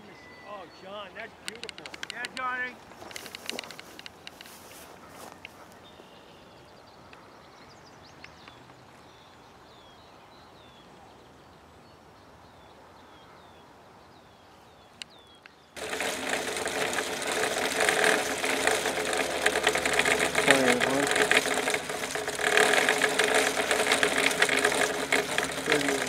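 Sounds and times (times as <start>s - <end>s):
loud rapid rattling noise: 15.8s - 26.0s.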